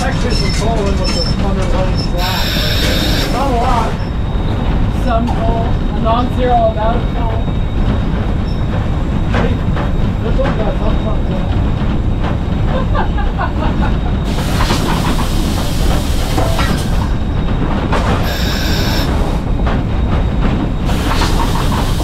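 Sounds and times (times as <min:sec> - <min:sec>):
locomotive rumble and rattle: 0:00.0 - 0:22.0
steam hiss: 0:02.2 - 0:04.0, 0:14.3 - 0:17.2, 0:18.2 - 0:19.4, 0:20.8 - 0:22.0.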